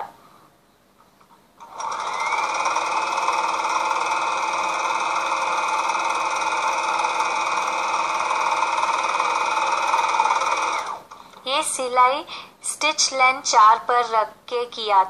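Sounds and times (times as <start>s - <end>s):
sewing machine humming: 1.6s - 11.2s.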